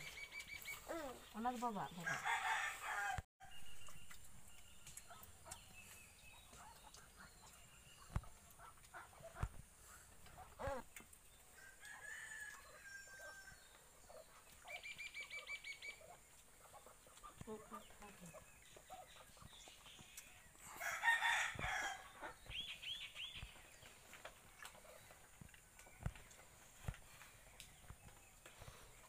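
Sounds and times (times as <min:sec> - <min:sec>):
small birds chirping: 0:00.0 - 0:29.0
rooster crowing: 0:02.0 - 0:03.2, 0:11.6 - 0:13.6, 0:20.7 - 0:22.1.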